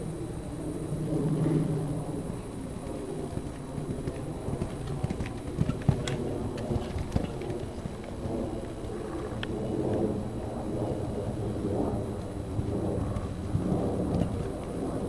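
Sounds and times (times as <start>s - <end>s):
wind rumble on microphone: 0.0s - 15.0s
horse hoofbeats on sand: 3.2s - 8.8s.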